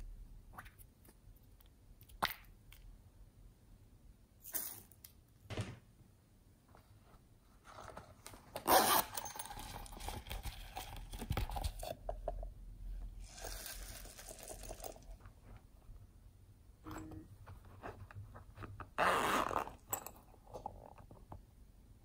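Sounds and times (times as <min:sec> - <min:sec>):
beads clicking and rattling: 0:13.2 - 0:15.2
beads rustling being poured: 0:13.2 - 0:15.2.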